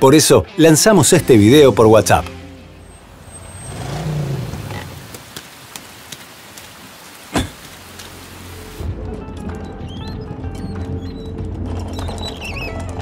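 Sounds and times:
rain falling on pavement: 3.2s - 8.9s.

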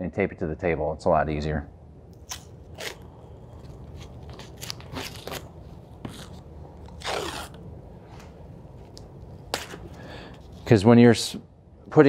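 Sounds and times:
tape ripping off the roll: 2.2s - 7.6s.

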